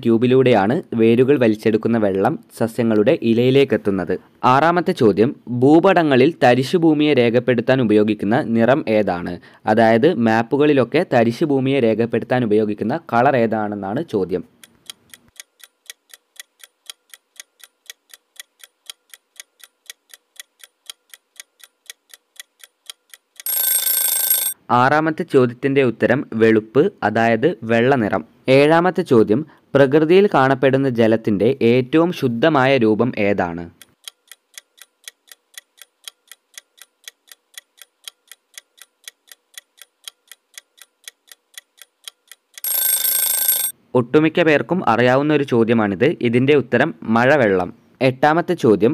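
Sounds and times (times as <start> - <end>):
clock ticking: 14.5 - 24.6, 33.7 - 43.8.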